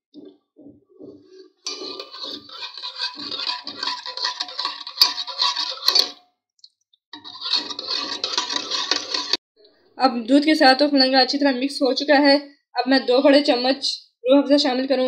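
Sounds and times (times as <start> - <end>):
liquid swishing: 1.2 - 6.2, 7.2 - 9.4
ladle scraping a steel pot: 1.4 - 6.2, 7.2 - 9.4.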